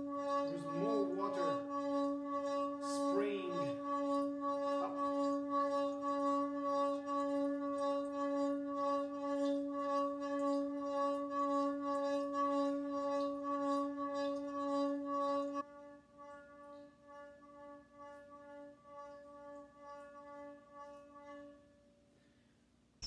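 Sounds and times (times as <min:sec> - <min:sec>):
singing metal pot tone: 0:00.0 - 0:15.6.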